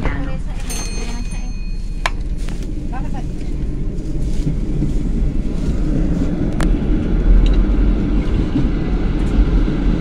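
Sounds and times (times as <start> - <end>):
vehicle low rumble: 0.0 - 10.0.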